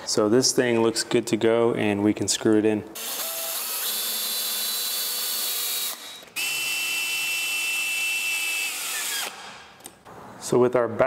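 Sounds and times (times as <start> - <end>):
cordless drill motor whining: 3.0 - 9.4.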